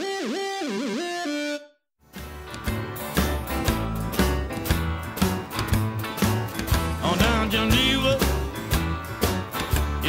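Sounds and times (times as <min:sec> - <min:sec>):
melodic intro music: 0:00.4 - 0:10.0
music with regular beat: 0:02.2 - 0:10.0.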